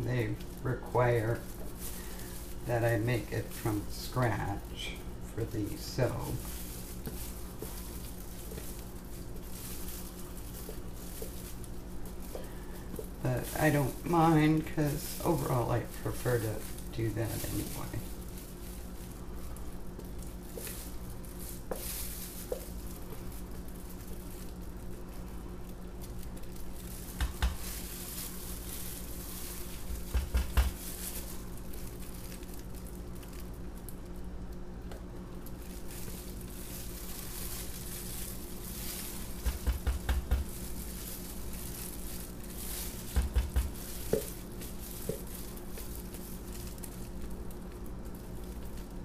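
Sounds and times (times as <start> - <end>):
plastic glove rustling: 0.0 - 49.0.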